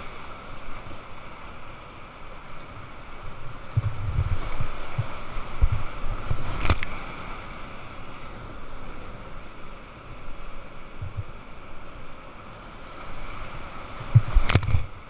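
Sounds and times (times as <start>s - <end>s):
wind buffeting microphone: 3.2s - 7.4s, 13.6s - 15.0s.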